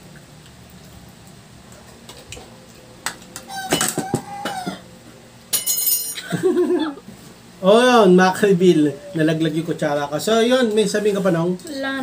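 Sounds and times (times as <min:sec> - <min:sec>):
cutlery clinking: 0:05.5 - 0:06.2
metal spoon clattering: 0:05.5 - 0:06.2.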